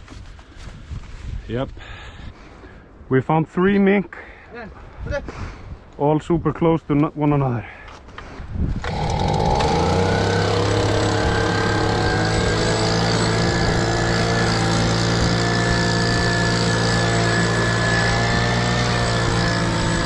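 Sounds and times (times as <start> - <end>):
petrol leaf blower running: 8.8 - 20.0.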